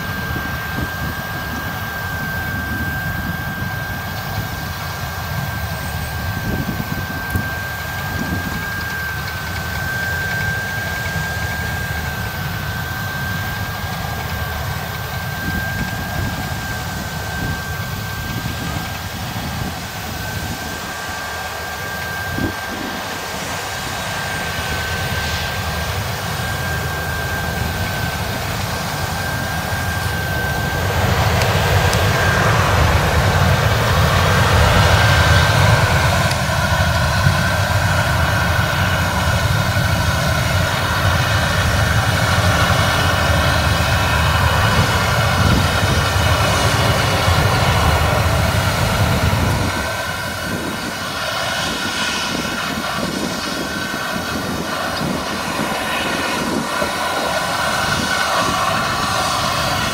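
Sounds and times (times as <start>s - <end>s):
combine harvester engine drone: 0.0s - 59.9s
high steady whine: 0.0s - 59.9s.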